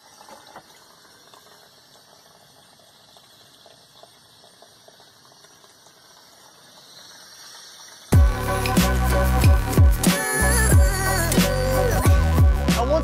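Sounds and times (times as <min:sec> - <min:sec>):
water trickling and bubbling: 0:00.0 - 0:08.7.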